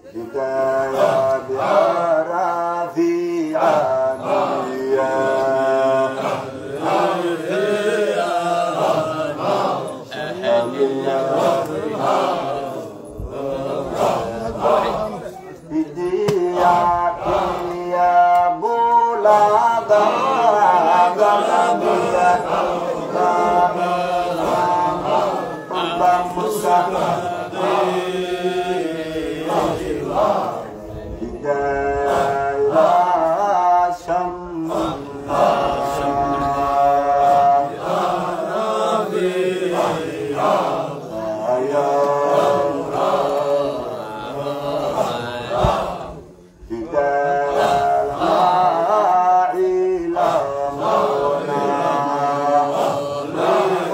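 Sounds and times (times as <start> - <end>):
person singing through microphone: 0.0 - 39.2
men chanting: 0.0 - 53.9.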